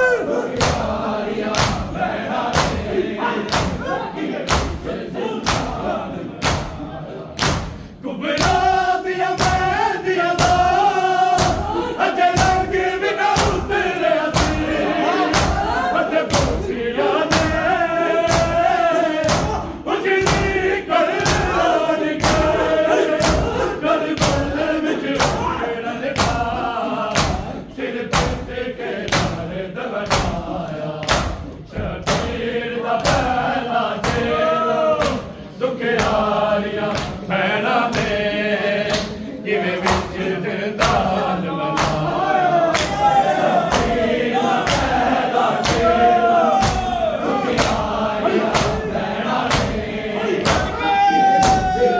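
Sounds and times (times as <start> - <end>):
men chanting in chorus: 0.0 - 51.9
rhythmic chest beating: 0.0 - 51.9.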